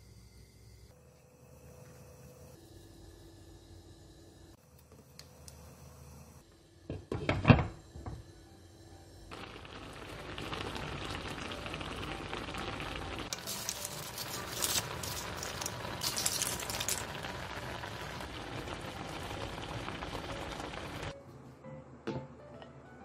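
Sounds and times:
stew bubbling and sizzling: 9.3 - 21.2.

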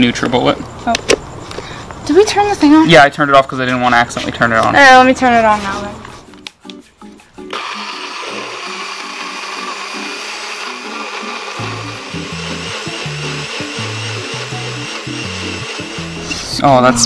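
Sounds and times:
background music with bass line: 6.2 - 17.0
blender running: 7.5 - 16.5.

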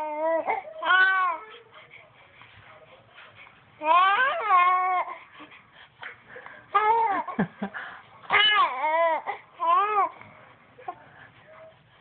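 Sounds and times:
baby cooing and babbling: 0.0 - 1.6, 3.8 - 5.2, 8.3 - 10.2.

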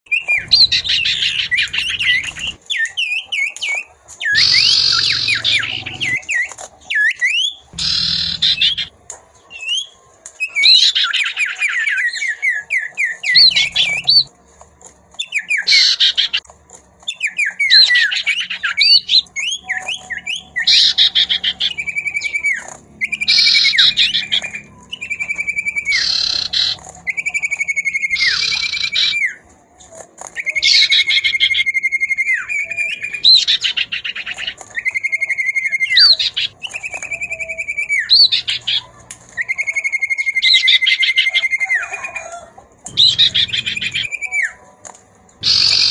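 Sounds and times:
harsh bird chattering: 0.1 - 3.2, 4.3 - 6.5, 7.3 - 8.9, 12.7 - 14.3, 17.1 - 29.4, 32.8 - 39.0, 42.9 - 44.5, 45.4 - 45.9
birds whistling and trilling: 0.1 - 14.4, 15.1 - 44.7, 45.4 - 45.9.

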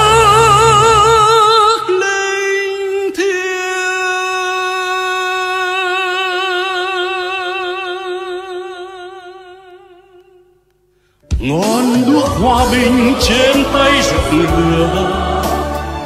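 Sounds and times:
backing accompaniment: 11.4 - 16.0.

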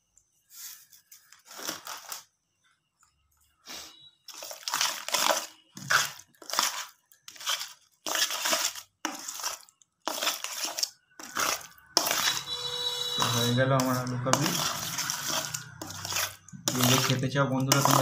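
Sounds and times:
spoon scraping in metal bowl: 4.3 - 18.0.

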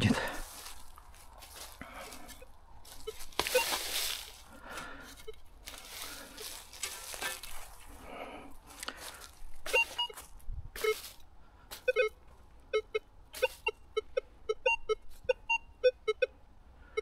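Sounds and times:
soil and leaves scraping: 0.0 - 12.0, 13.4 - 13.6
metal detector beeps: 2.3 - 4.3, 5.0 - 5.5, 9.7 - 10.2, 10.8 - 16.4.

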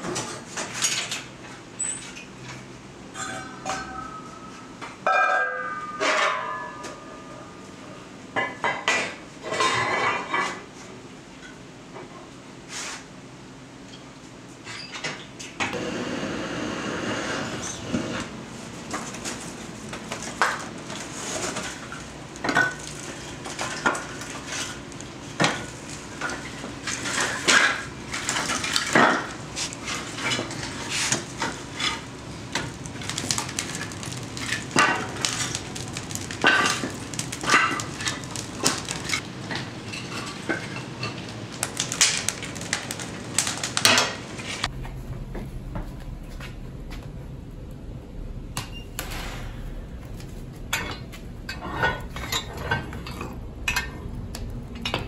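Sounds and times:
fire crackling: 15.7 - 55.0.

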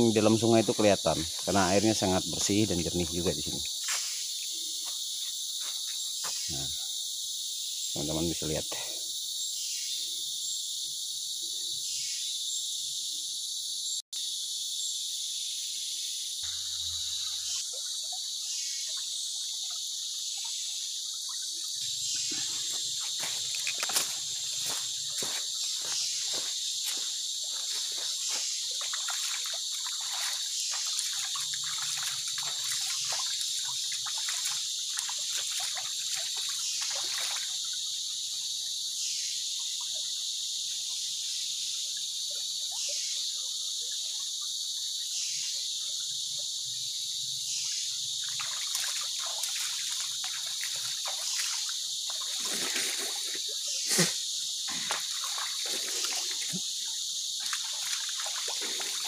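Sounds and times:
stream trickling: 0.0 - 13.9, 16.2 - 59.0
insects chorus: 0.0 - 59.0
footsteps on gravel: 22.3 - 29.2
hands splashing in water: 28.8 - 37.5, 48.4 - 56.7, 57.4 - 59.0.

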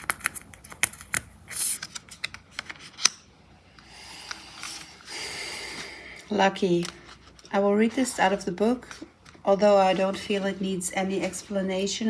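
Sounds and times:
cards shuffled by hand: 0.0 - 3.1.

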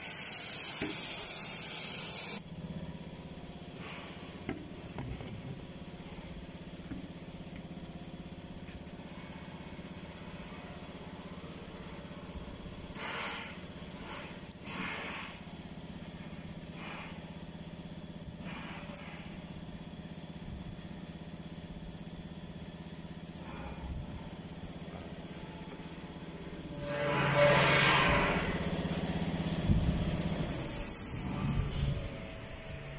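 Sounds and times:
compressed air hissing: 0.0 - 2.4, 29.8 - 32.9
welding machine humming: 0.0 - 3.0.

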